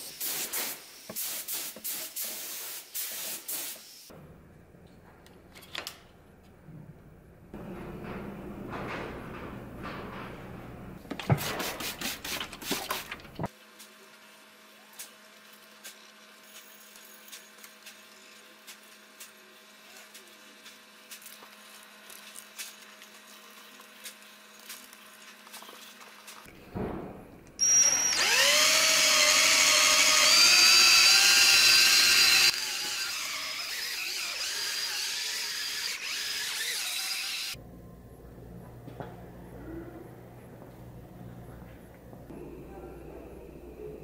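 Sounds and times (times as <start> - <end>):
electric drill polishing whine: 27.6 - 37.6.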